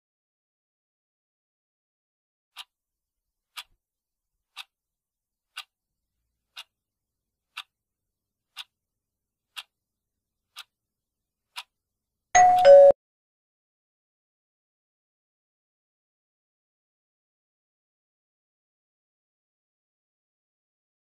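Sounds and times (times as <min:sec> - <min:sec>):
faint timer ticks: 0:02.5 - 0:02.8, 0:03.5 - 0:03.8, 0:04.4 - 0:04.8, 0:05.4 - 0:07.8, 0:08.4 - 0:13.0.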